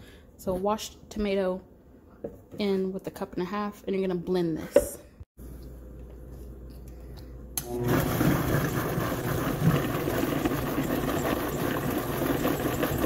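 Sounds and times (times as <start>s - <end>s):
blender motor running: 7.6s - 13.0s.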